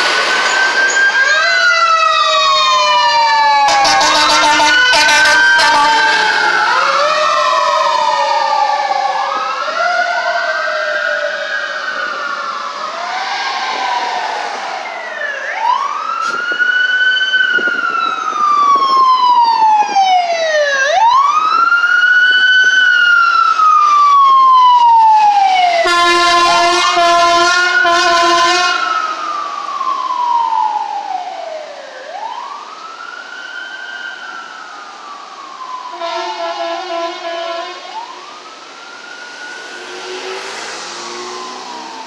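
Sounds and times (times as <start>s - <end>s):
second siren: 0.0s - 42.0s
siren wailing: 0.0s - 42.0s
vehicle horn blast: 3.7s - 6.3s, 25.9s - 28.8s, 35.9s - 37.9s.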